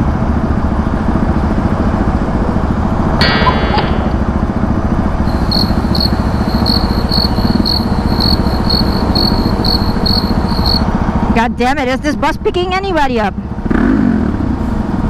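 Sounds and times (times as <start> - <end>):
engines idling: 0.1 - 12.7
short electronic beeps: 5.3 - 10.8.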